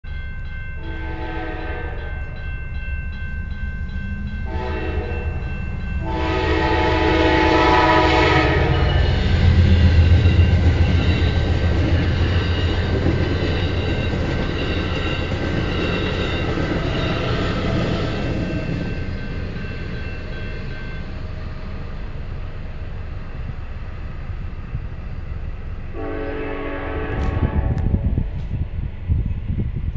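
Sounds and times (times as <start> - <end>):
crossing signal bell ringing: 0.0 - 22.3
locomotive rumble: 0.1 - 29.9
locomotive horn blasts: 0.8 - 2.2, 4.4 - 9.3, 25.9 - 28.1
passenger cars rolling by: 5.2 - 25.9.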